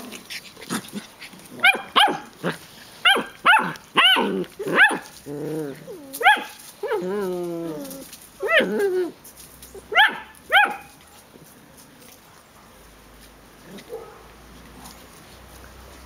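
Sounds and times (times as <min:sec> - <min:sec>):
puppies yapping: 0:00.1 - 0:05.2, 0:05.8 - 0:09.0.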